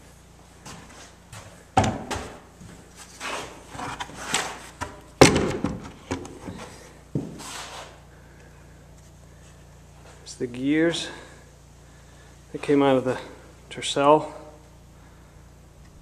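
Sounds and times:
knocks of wood and metal: 0:01.8 - 0:02.4, 0:04.3 - 0:06.6.

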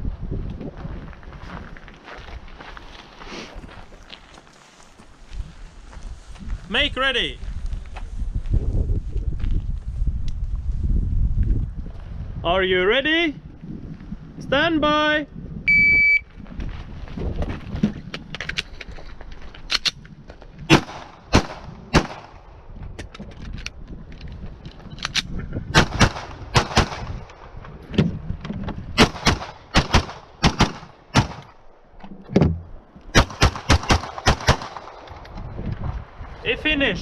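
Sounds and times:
pistol firing rapid shots: 0:20.7 - 0:22.3, 0:25.8 - 0:27.2, 0:29.0 - 0:31.4, 0:33.2 - 0:35.0.

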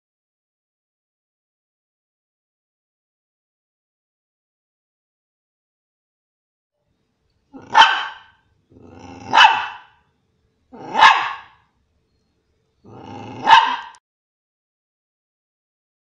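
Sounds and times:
dog growling: 0:07.5 - 0:09.9, 0:10.8 - 0:11.5, 0:12.8 - 0:14.0
dog barking: 0:07.6 - 0:10.0, 0:10.8 - 0:11.6, 0:12.9 - 0:14.0.

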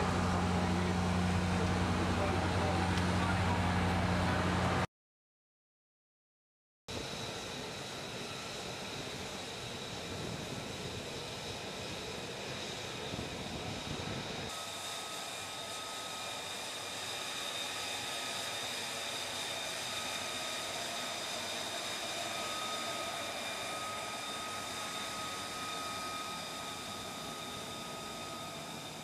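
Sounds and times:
high jet whine: 0:00.0 - 0:04.9, 0:06.9 - 0:29.0
jet engine rushing: 0:07.0 - 0:29.0.

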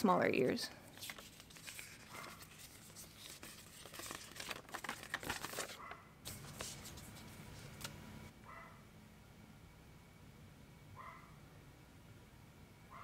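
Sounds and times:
paper rustling and crinkling: 0:00.9 - 0:08.0.

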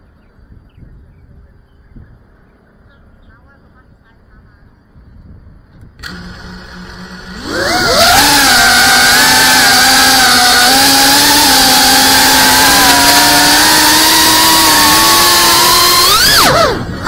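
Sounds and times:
drone motors buzzing whine: 0:05.8 - 0:17.0.

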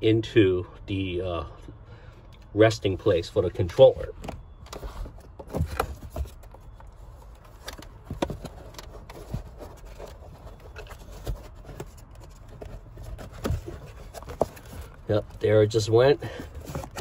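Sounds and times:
low rumble of handling: 0:01.4 - 0:17.0
case knocking and scraping: 0:04.2 - 0:15.2, 0:16.3 - 0:17.0.

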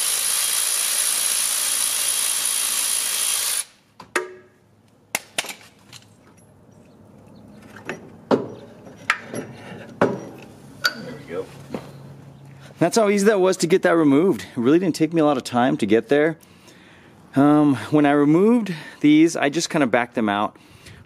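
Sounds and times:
handheld power tool running: 0:00.0 - 0:03.8.

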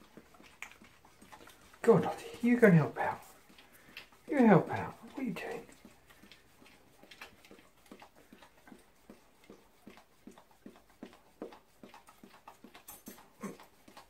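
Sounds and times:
dog licking plates: 0:00.0 - 0:14.0.

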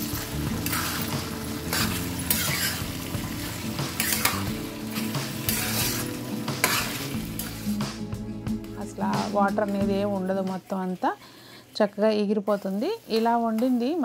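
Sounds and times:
meat sizzling in a pan: 0:00.0 - 0:08.1
steel spatula scraping pan: 0:00.5 - 0:07.8.

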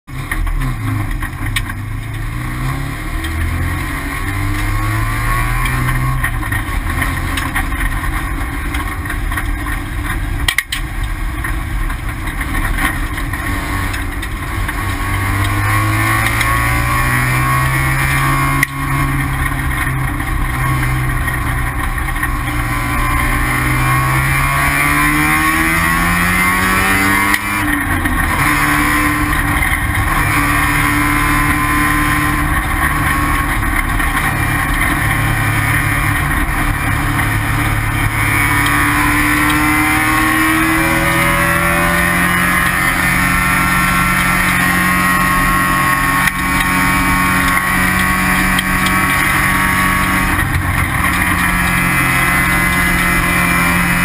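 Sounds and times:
race car engine revving: 0:00.1 - 0:54.0.

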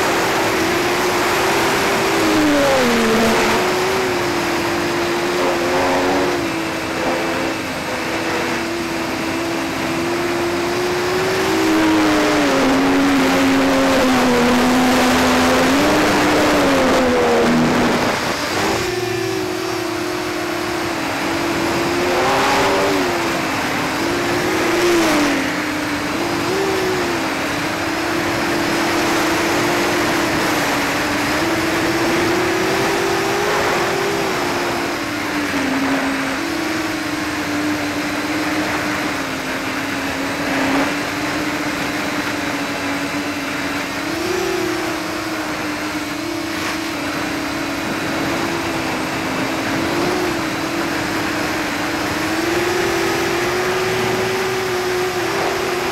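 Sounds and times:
drone motors whining: 0:00.0 - 0:37.5.

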